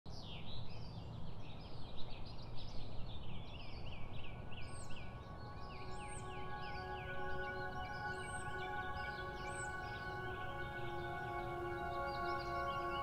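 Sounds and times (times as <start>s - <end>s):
background music tones: 3.8s - 13.0s.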